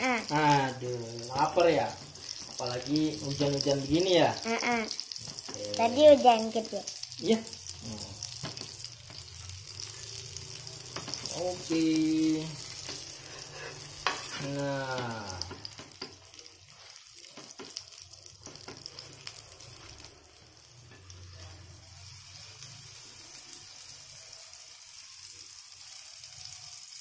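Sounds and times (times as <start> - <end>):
food sizzling in oil: 0.0 - 27.0
metal spatula scraping: 12.5 - 14.6.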